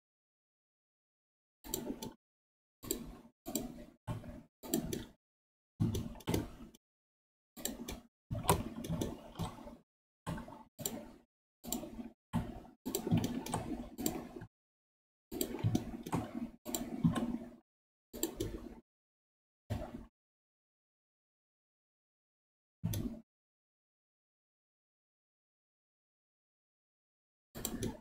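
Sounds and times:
keyboard and mouse clicking: 1.7s - 2.2s, 2.8s - 3.8s, 4.6s - 5.2s, 5.8s - 6.8s, 7.6s - 14.4s, 15.3s - 17.4s, 18.2s - 18.7s, 27.6s - 28.0s.

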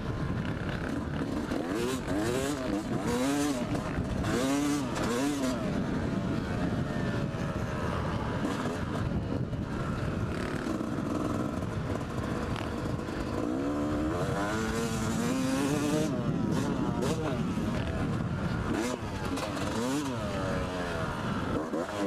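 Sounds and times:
motorcycle engine revving: 0.0s - 22.0s
wind noise on microphone: 2.8s - 19.5s.

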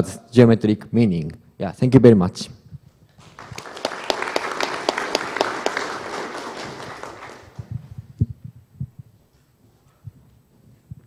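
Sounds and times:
audience applauding: 3.2s - 7.9s.

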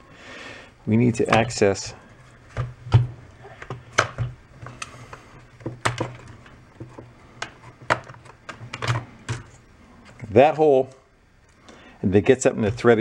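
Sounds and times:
low background hum: 0.0s - 13.0s
plastic parts clicking and knocking: 2.5s - 10.3s.

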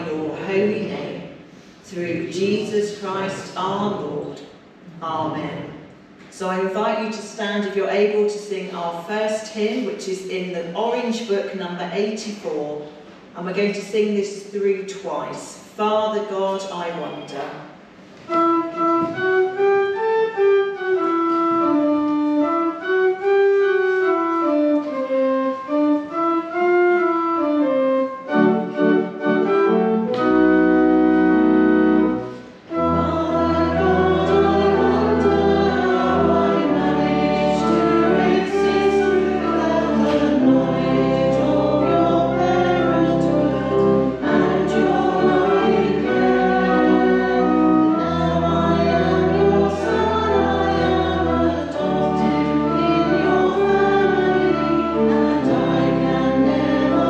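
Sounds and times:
congregation singing a hymn: 0.0s - 4.2s, 28.3s - 57.0s
instrumental accompaniment: 17.9s - 57.0s.

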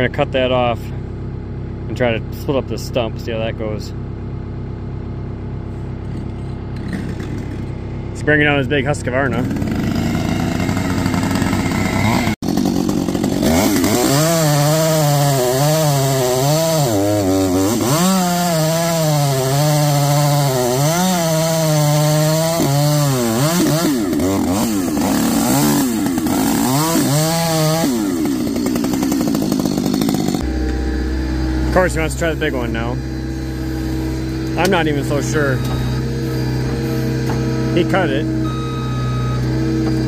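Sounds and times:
chainsaw cutting into stump: 9.4s - 38.8s.

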